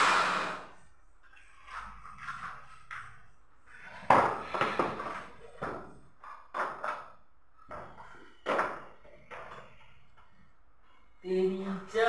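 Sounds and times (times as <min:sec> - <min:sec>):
wooden panels knocking on floor: 0:04.0 - 0:09.7.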